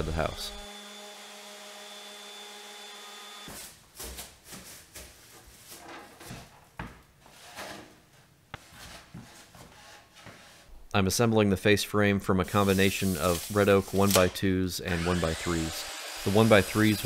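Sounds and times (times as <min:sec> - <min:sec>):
orbital sander running: 0:00.2 - 0:03.5, 0:14.9 - 0:17.0.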